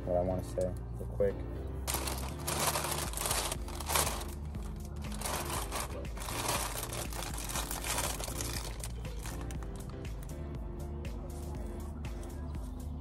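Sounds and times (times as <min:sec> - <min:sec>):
plastic wrapping crinkling: 0:01.9 - 0:10.3.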